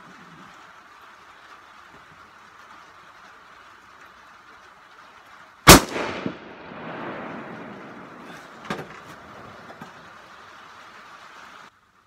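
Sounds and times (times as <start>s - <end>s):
rifle shot echoing: 5.7s - 8.6s.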